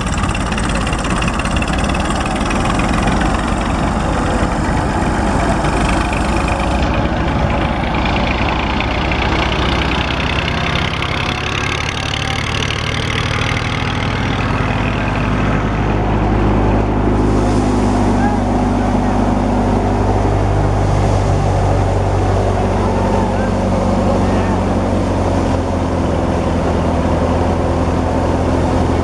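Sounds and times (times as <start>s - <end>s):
thresher threshing noise: 0.0s - 28.9s
tractor diesel engine running: 0.0s - 29.0s.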